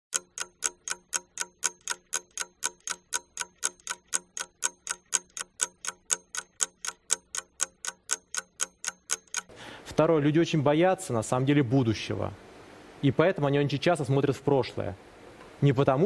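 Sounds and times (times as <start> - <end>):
fast even ticking: 0.1 - 9.5.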